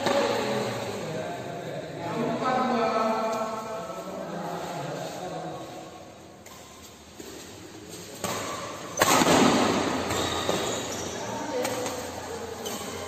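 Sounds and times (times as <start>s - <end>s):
racket hitting shuttlecock: 0.0s - 0.5s, 6.4s - 13.0s.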